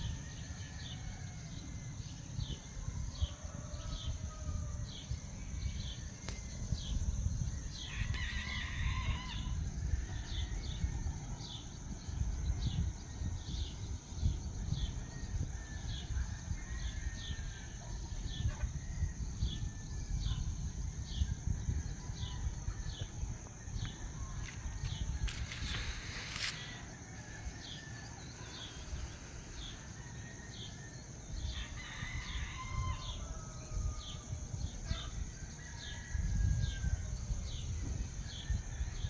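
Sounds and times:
insect trill: 0.0 - 39.0
rooster crowing: 3.0 - 5.0, 7.8 - 10.7, 24.4 - 37.1.

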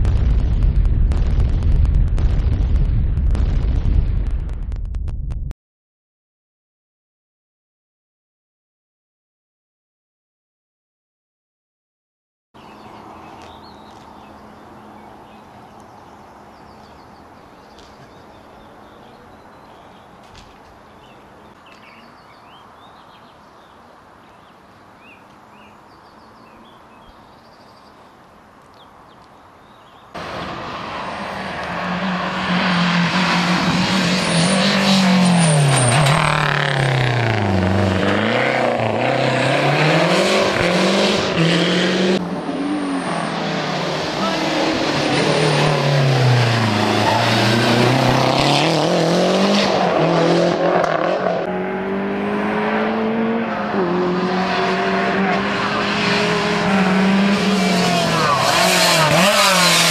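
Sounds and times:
faint birdsong: 12.6 - 30.2
rally car at full throttle: 30.2 - 59.9.

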